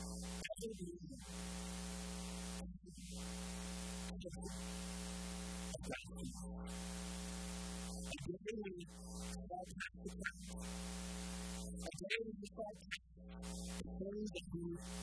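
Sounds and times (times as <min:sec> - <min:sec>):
quiet speech: 0:00.0 - 0:01.4, 0:02.2 - 0:04.8, 0:05.6 - 0:06.9, 0:07.8 - 0:10.8, 0:11.6 - 0:15.0
electrical mains hum with hiss: 0:00.0 - 0:08.2, 0:08.9 - 0:11.9, 0:13.3 - 0:15.0.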